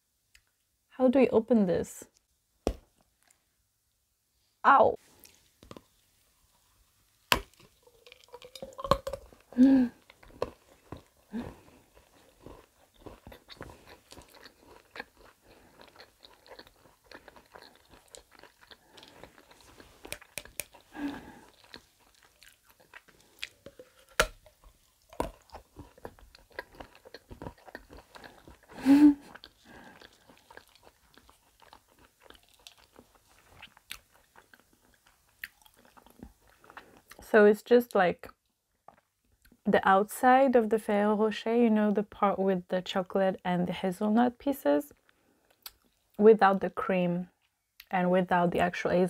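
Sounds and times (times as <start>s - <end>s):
crunchy chewing: 7.4s - 37.2s.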